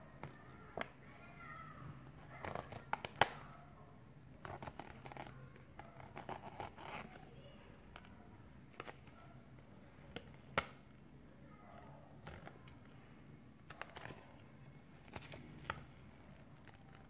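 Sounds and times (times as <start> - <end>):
faint low hum: 0.0 - 17.0
paper crackling: 13.6 - 17.0.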